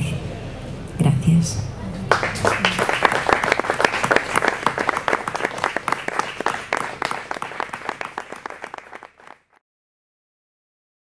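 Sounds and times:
audience applauding: 2.1 - 9.6.

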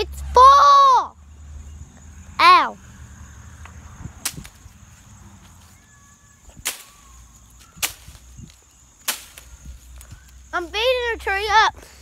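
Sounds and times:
stick striking tree trunk: 4.2 - 4.7, 6.6 - 7.0, 7.6 - 8.3, 9.0 - 9.5.

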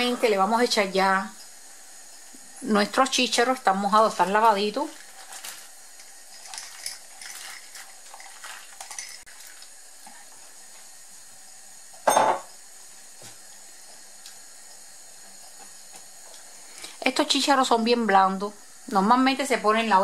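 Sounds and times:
small splashes and clinks: 6.0 - 9.6.

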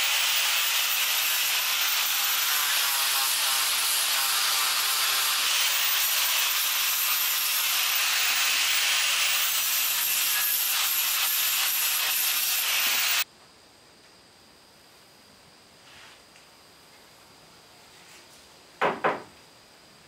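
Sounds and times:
electric sander on wood: 0.0 - 13.2.

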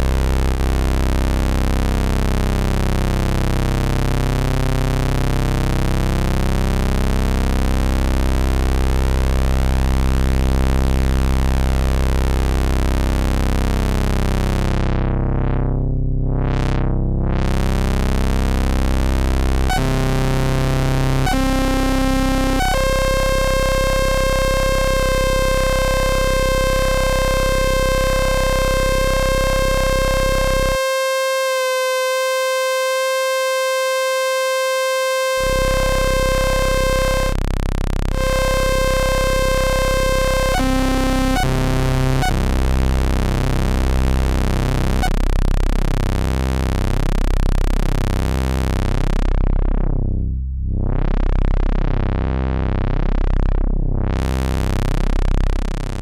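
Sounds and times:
synthesizer tone: 21.3 - 37.4, 38.1 - 42.4.

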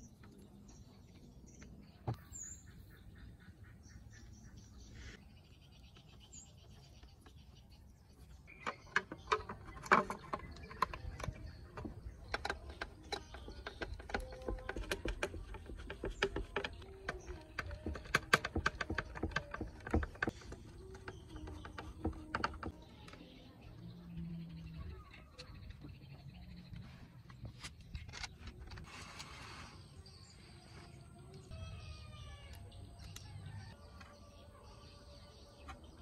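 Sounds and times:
screwdriver tapping on plastic: 10.6 - 20.4.

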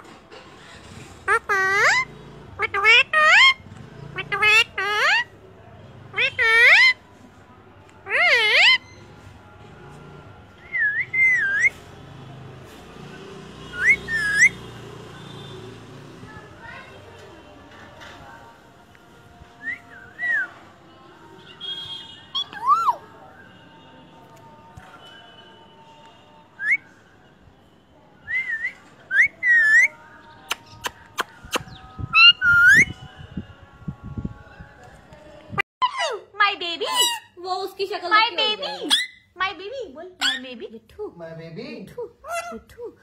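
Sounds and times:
parakeet whistling: 13.7 - 14.6, 38.6 - 39.3.

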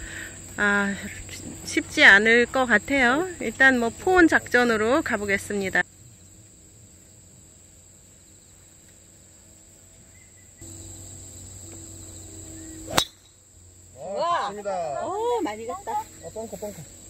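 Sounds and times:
golf driver striking ball: 12.9 - 13.4.

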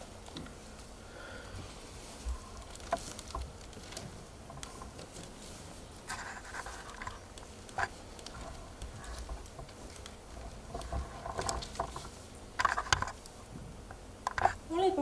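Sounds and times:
paper pages rustling: 2.0 - 13.3.

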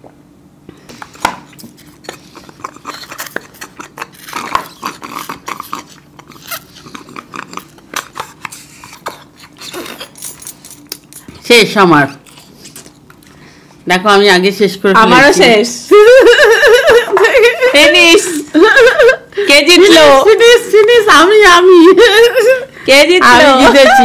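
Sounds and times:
gulping: 1.8 - 10.2.

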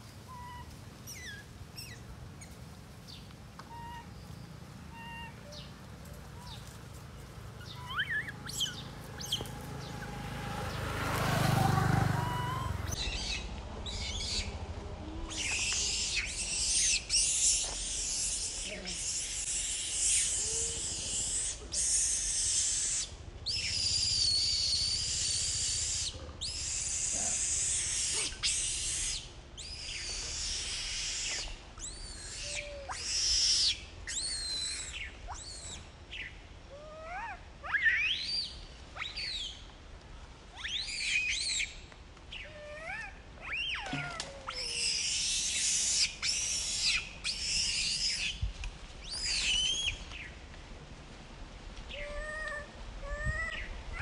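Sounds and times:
baby monkey screaming: 0.3 - 2.0, 3.7 - 4.1, 4.9 - 5.6, 7.6 - 9.4, 12.1 - 14.5, 15.2 - 39.5, 40.5 - 41.7, 42.3 - 48.4, 51.9 - 54.0.

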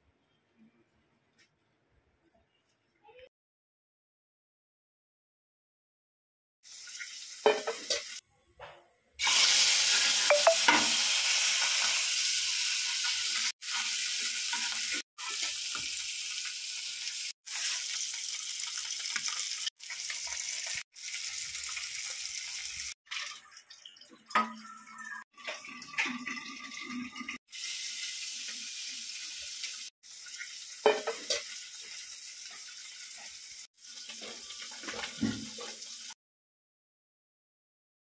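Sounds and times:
oil sizzling in a pan: 6.6 - 8.2, 9.2 - 24.0, 27.4 - 36.2.

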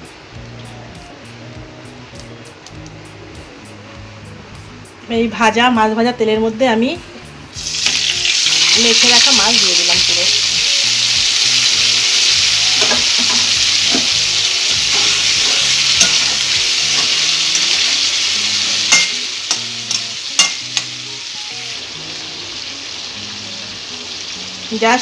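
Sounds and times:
fish sizzling in hot oil: 7.6 - 25.0
metal spatula knocking pan: 14.9 - 17.9, 18.9 - 21.0.

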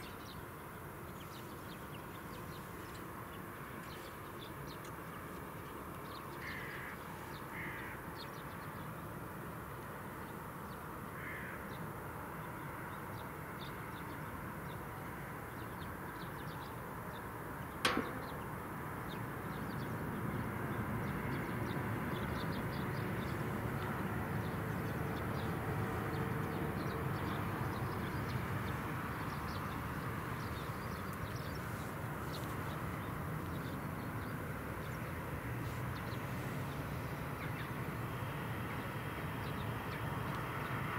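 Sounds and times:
crow cawing: 6.4 - 8.0, 11.2 - 11.6
sharp click: 17.8 - 18.6.

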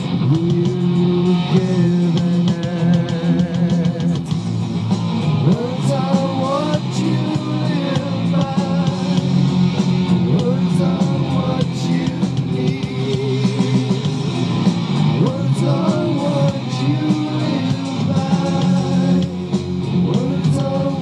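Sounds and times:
person singing: 0.0 - 4.3, 5.4 - 9.4, 10.1 - 14.1, 15.2 - 19.4, 20.0 - 21.0
rock song with guitar and drums: 0.0 - 21.0.

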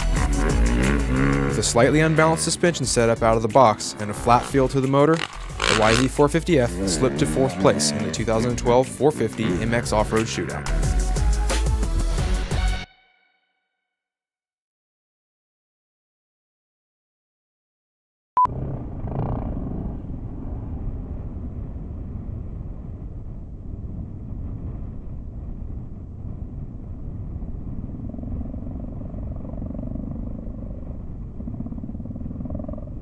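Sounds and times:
dirt bike engine running: 0.0 - 11.4
wind on microphone: 18.5 - 33.0.

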